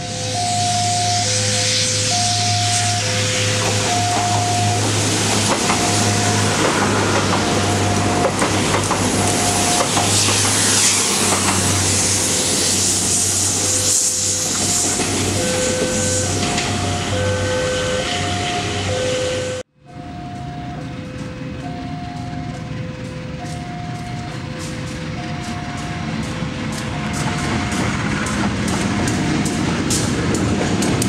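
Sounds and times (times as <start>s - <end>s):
two-note signal tones: 0.0s - 4.9s, 15.4s - 27.8s
train engine drone: 0.0s - 31.0s
wheel and rail noise: 0.0s - 31.0s.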